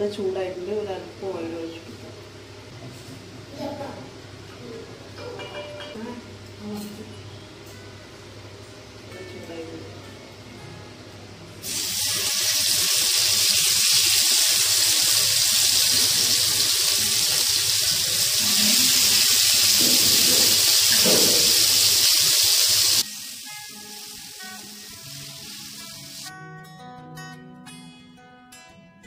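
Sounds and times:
chicken sizzling in hot oil: 11.6 - 26.3.

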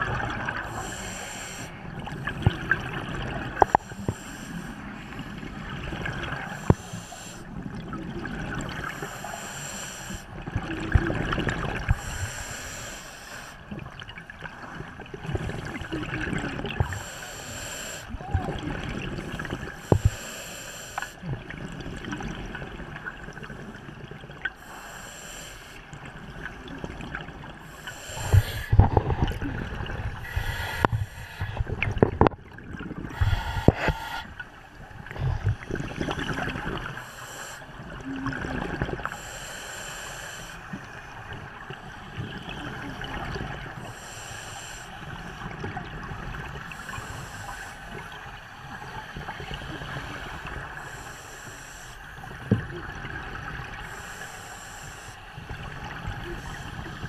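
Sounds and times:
exhaled air bubbling underwater: 0.0 - 57.0
regulator breathing hiss: 0.6 - 1.8, 3.6 - 5.1, 6.4 - 7.5, 8.8 - 10.3, 11.9 - 13.7, 16.8 - 18.1, 19.8 - 21.2, 24.6 - 25.9, 27.6 - 28.8, 30.2 - 31.8, 33.1 - 34.4, 36.8 - 37.8, 39.0 - 40.7, 43.9 - 45.5, 46.7 - 47.9, 50.8 - 52.2, 53.8 - 55.4.

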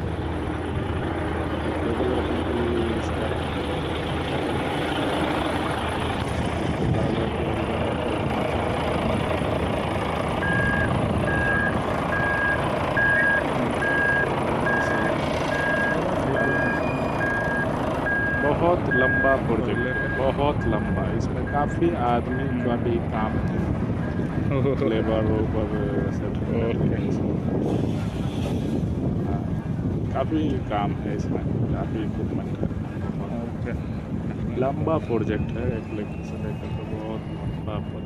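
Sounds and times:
construction site rumble: 0.0 - 38.0
vehicle reversing alarm beeping: 10.4 - 26.3, 35.0 - 38.0.

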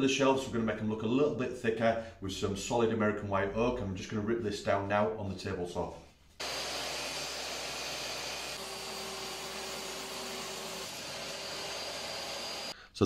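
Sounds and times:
table saw ripping wood: 6.4 - 12.7.

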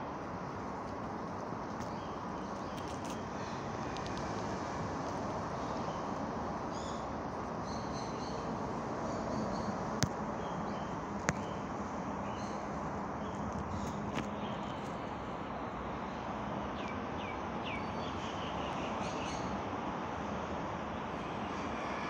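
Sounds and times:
small birds chirping: 1.4 - 4.6, 5.5 - 15.0.

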